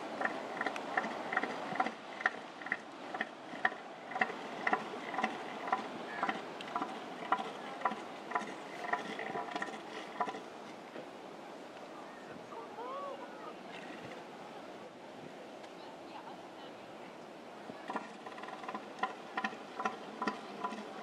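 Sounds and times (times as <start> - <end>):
elephant seal clacking threat call: 0.0 - 10.5, 17.9 - 21.0.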